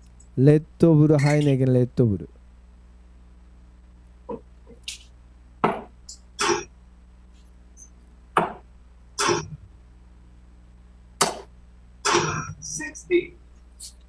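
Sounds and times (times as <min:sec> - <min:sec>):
darts hitting dartboard: 0:05.6 - 0:06.7, 0:08.4 - 0:09.5, 0:11.2 - 0:11.5.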